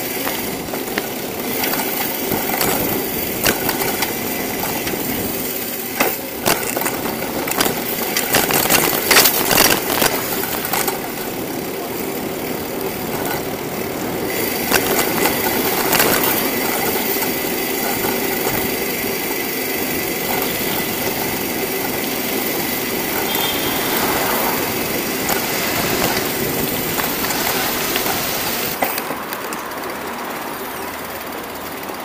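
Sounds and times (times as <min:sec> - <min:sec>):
bicycle rolling on asphalt: 0:00.0 - 0:32.0
car passing: 0:22.0 - 0:31.6.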